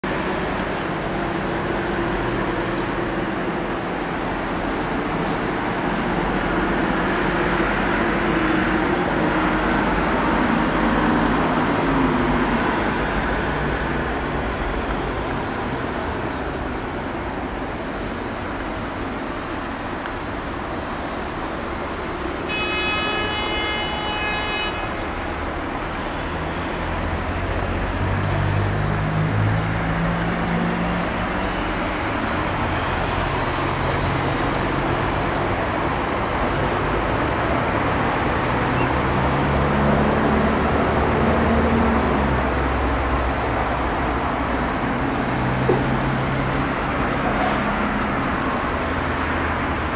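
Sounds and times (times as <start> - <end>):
road traffic passing: 0.0 - 49.9
car horn: 21.7 - 25.0.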